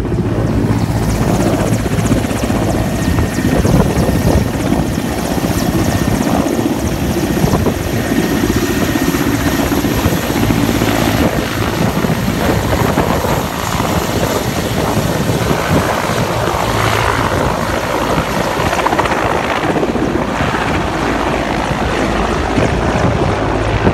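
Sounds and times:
helicopter rotor and turbine noise: 0.0 - 23.9.

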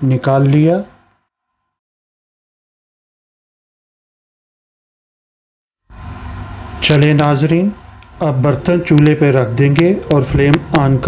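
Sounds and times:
speech: 0.0 - 0.9, 6.8 - 11.0.

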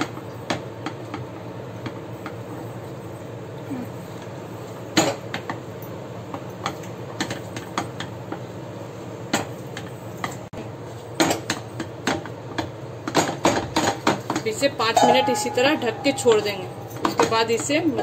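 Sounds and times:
low hum: 15.0 - 18.0.

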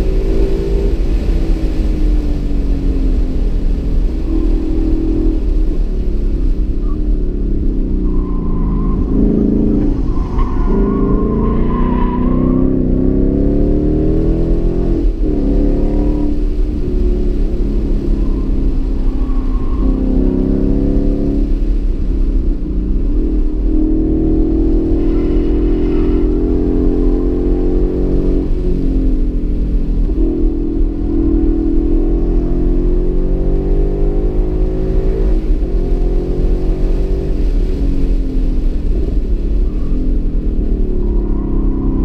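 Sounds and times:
car engine revving: 0.0 - 42.0
tire squeal: 6.3 - 13.2, 17.9 - 21.2, 24.6 - 28.7, 38.9 - 42.0.

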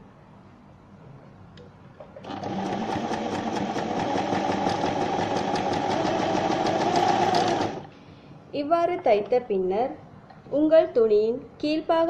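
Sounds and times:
sewing machine stitching: 2.2 - 7.9.

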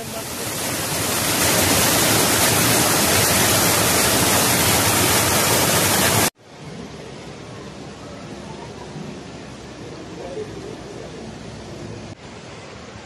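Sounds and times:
water cascading over boulders: 0.0 - 6.4.

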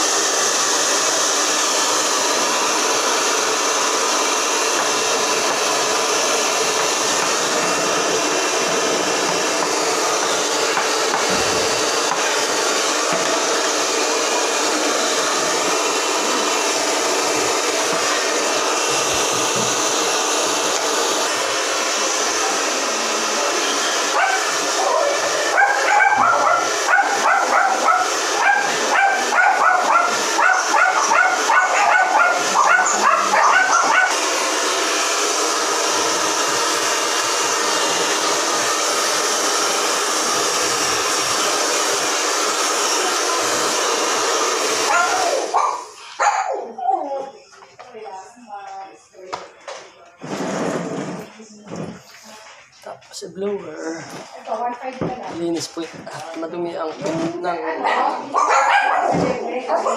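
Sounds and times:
hair dryer blowing: 0.0 - 52.4, 53.2 - 59.9
dog barking: 24.1 - 34.2, 44.9 - 47.0, 57.8 - 59.9.

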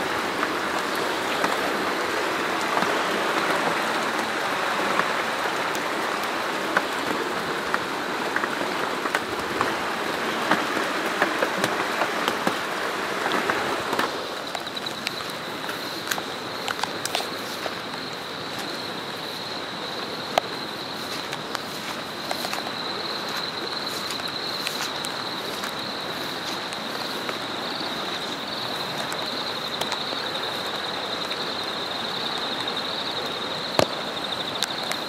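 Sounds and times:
rain hiss: 0.0 - 35.0
high-pitched insect trill: 14.3 - 35.0.

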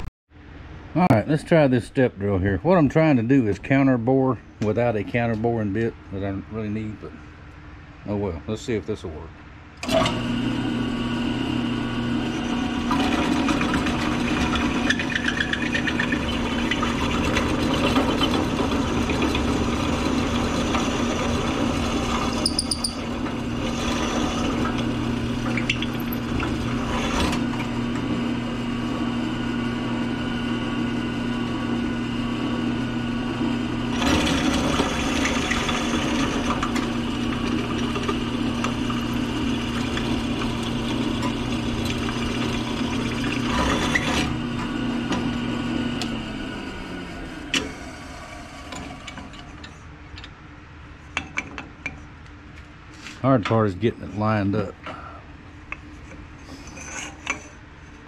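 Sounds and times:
drill press motor humming: 9.8 - 50.3
drill bit cutting metal tube: 9.9 - 46.2.

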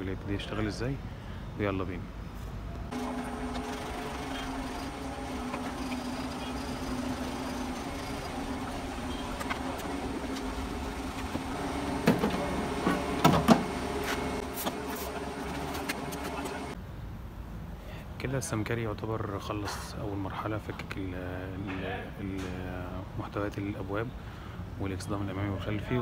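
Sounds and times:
steady machine hum: 2.9 - 16.8.

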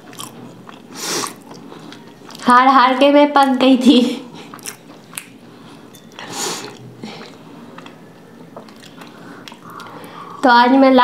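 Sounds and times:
chewing and mouth sounds: 0.0 - 2.5, 4.3 - 10.2.

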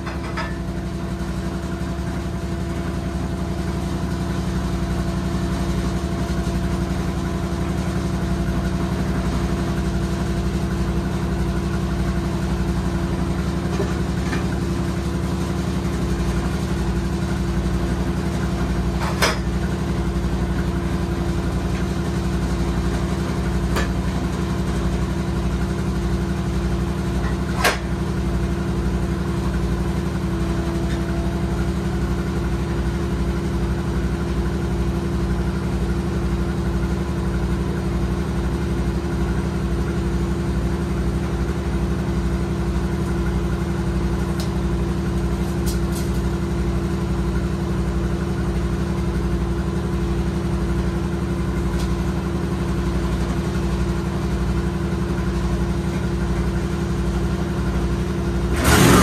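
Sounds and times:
sawmill engine idling: 0.0 - 59.0.

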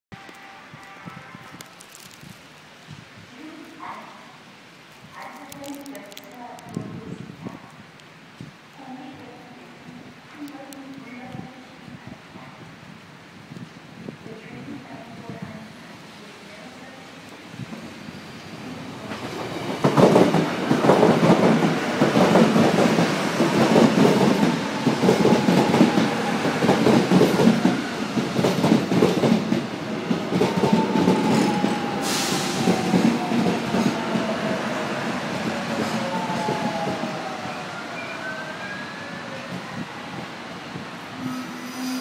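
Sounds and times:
train wheels clattering: 19.1 - 34.3
train braking whine: 30.4 - 40.3, 41.0 - 42.0.

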